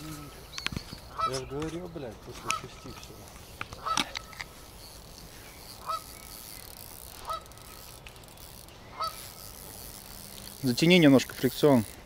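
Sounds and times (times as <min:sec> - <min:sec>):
goose honking: 0:03.8 - 0:04.1, 0:05.8 - 0:06.1, 0:07.2 - 0:07.5, 0:08.9 - 0:09.2.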